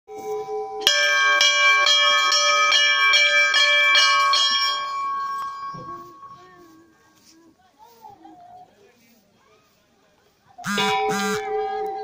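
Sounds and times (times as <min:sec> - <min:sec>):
temple bell struck: 0:00.8 - 0:06.4.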